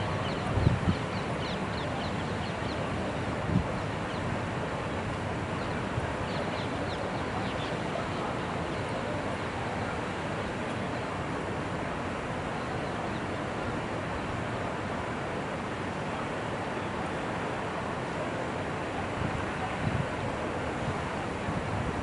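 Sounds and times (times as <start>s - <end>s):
wind on microphone: 0.0s - 1.5s, 3.2s - 4.6s, 19.1s - 22.0s.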